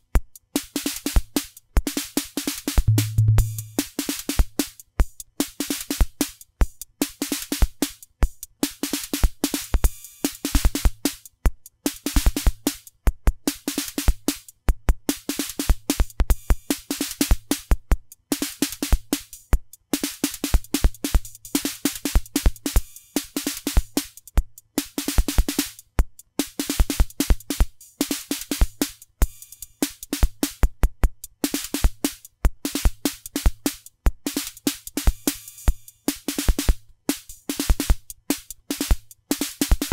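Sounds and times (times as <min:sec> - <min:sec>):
kick drum hits: 0:02.9 - 0:03.8
mid drum thump: 0:02.9 - 0:03.8
hissy cymbal and hi-hat hits: 0:02.9 - 0:03.9, 0:31.5 - 0:39.9.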